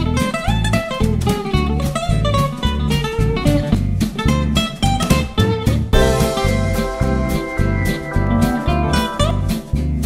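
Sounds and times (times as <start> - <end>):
plucked guitar tune: 0.0 - 10.0
steady bass beat: 6.0 - 9.9.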